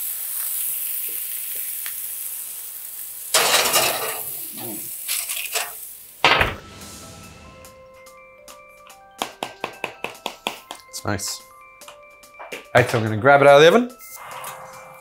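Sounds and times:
mushrooms sizzling in a pan: 0:00.0 - 0:06.2
metal pan clatter: 0:03.4 - 0:04.3, 0:05.1 - 0:05.8.

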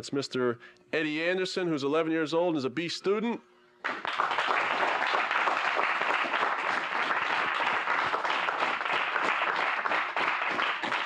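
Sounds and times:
people clapping: 0:03.8 - 0:11.0.

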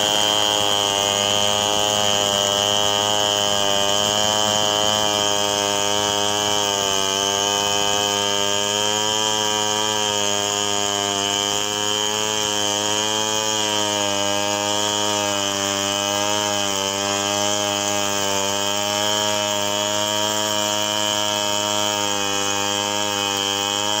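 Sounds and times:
chainsaw cutting log: 0:00.0 - 0:24.0.

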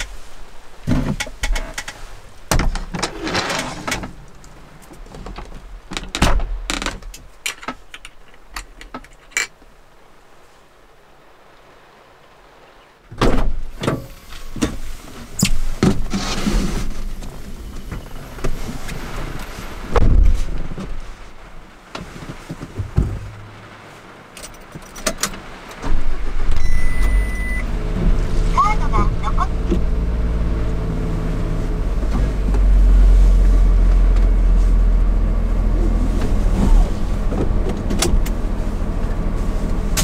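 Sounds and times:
rain patter: 0:00.0 - 0:16.1, 0:16.8 - 0:40.0
thumps and rustling in truck cab: 0:00.8 - 0:04.2, 0:04.8 - 0:07.8, 0:13.1 - 0:23.6, 0:24.4 - 0:26.6, 0:32.0 - 0:34.9, 0:35.6 - 0:38.6
wooden window shutting and latching: 0:05.1 - 0:07.1.

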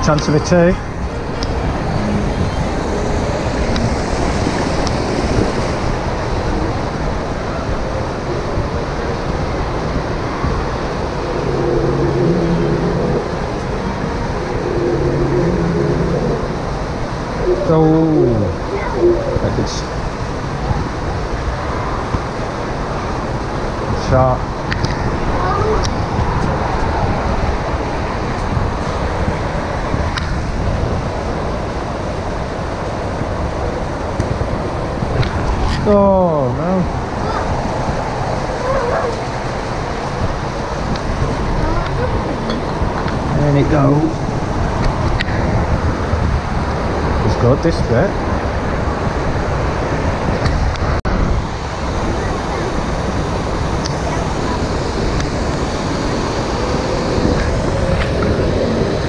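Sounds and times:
held low tones: 0:00.0 - 0:20.0
heavy low rumble: 0:00.0 - 0:31.2
rushing outdoor noise: 0:00.0 - 0:59.0
wind buffeting microphone: 0:00.0 - 0:59.0.

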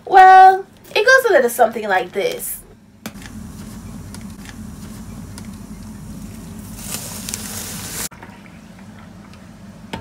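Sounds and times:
low hum: 0:03.0 - 0:09.4
water boiling in pot: 0:05.8 - 0:08.1
loud hiss: 0:06.7 - 0:08.1.

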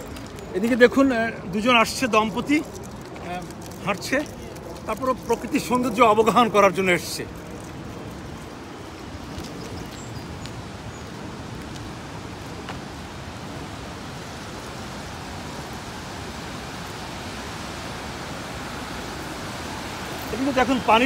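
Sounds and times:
large waterfall rushing: 0:10.7 - 0:21.0.

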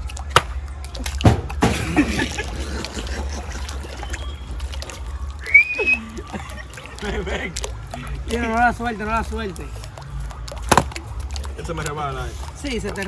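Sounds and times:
water splashing: 0:00.0 - 0:13.0
bottle knocking and handling: 0:00.3 - 0:02.1.

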